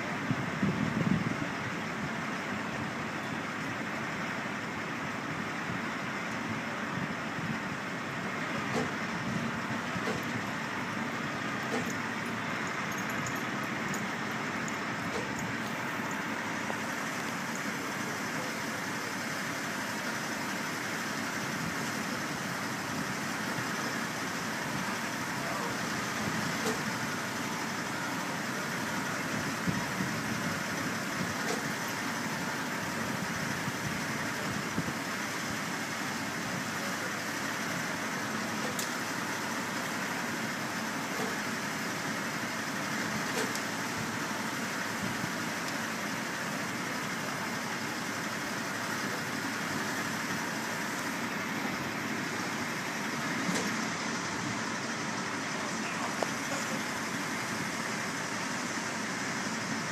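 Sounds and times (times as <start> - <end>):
truck engine idling: 0.0 - 59.9.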